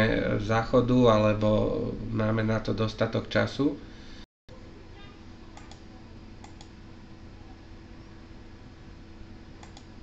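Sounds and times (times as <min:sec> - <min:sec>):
low electrical hum and hiss: 0:00.0 - 0:10.0
computer mouse clicks: 0:05.6 - 0:06.7, 0:09.6 - 0:09.9.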